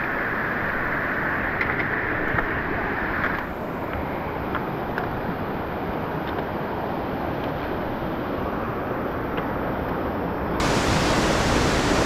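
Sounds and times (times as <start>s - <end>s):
waterfall rushing: 10.6s - 12.0s.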